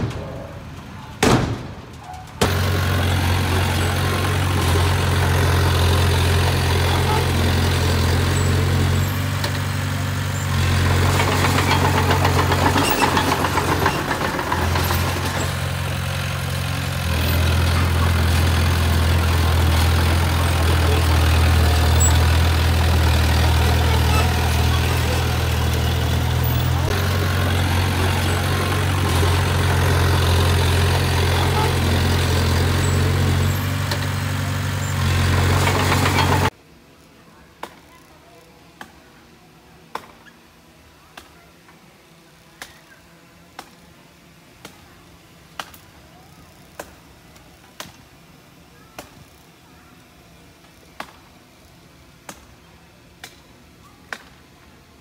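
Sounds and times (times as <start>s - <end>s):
bulldozer diesel engine droning: 0.0s - 36.6s.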